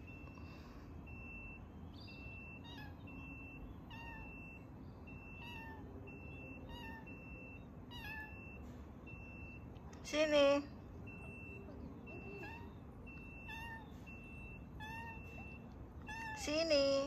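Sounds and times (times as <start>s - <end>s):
kitten meowing: 2.1s - 8.6s, 12.1s - 16.9s.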